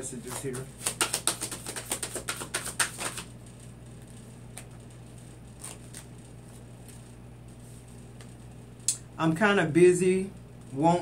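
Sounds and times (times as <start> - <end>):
cards being shuffled: 0.2 - 7.1.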